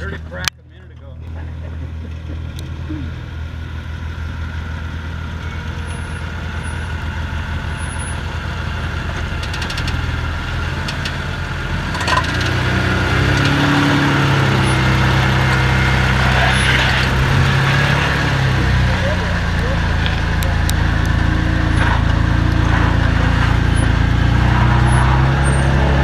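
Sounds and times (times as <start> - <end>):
engine running at low revs: 0.0 - 26.0.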